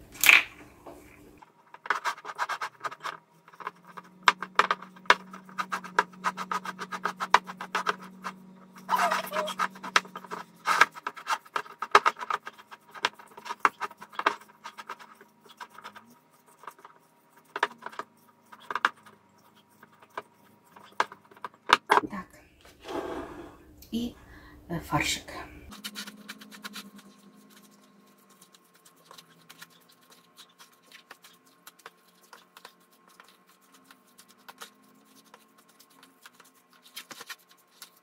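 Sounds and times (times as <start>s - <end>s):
spoon scraping ceramic bowl: 22.8s - 23.7s.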